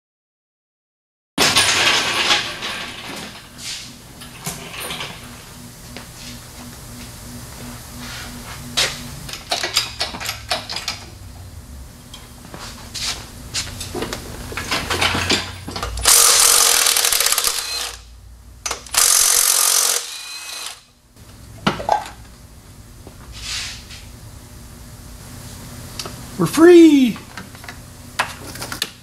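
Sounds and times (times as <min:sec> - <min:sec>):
tools and metal parts clanking: 0:01.4 - 0:05.4, 0:09.3 - 0:11.1, 0:13.8 - 0:18.0
power tool running: 0:01.5 - 0:11.4, 0:13.5 - 0:18.1, 0:18.7 - 0:21.0.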